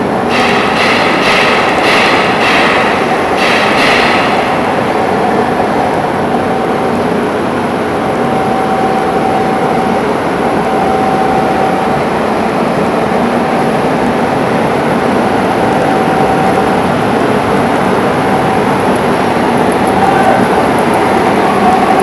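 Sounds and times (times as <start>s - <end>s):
machine whine: 0.0s - 22.0s
washing machine running: 0.0s - 22.0s.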